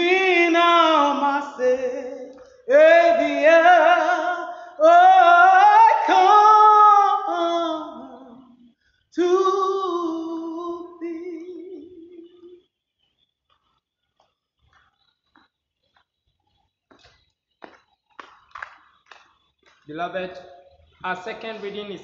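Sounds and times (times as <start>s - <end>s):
woman singing unaccompanied: 0.0s - 8.5s, 9.2s - 12.6s
singer breathing: 4.5s - 4.8s.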